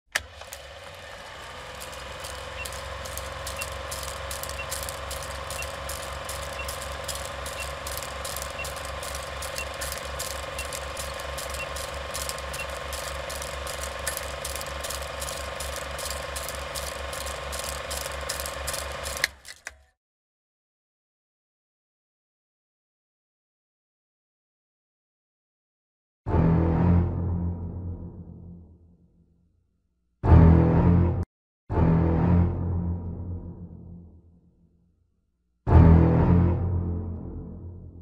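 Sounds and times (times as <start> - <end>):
projector stopping click: 0.1 - 19.8
film projector clattering: 0.1 - 19.9
steady hum: 1.8 - 19.3
short high beeps: 4.4 - 13.0.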